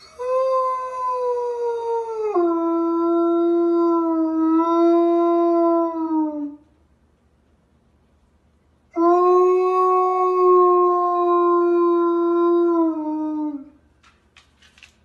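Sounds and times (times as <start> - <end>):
dog howling: 0.0 - 6.6, 9.0 - 13.8.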